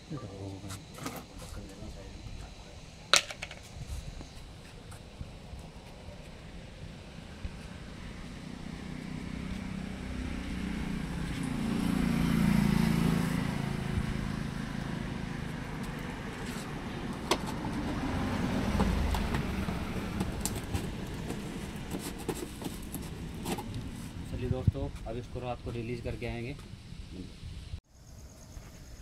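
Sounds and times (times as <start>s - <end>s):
vehicle engine passing: 7.0s - 24.5s.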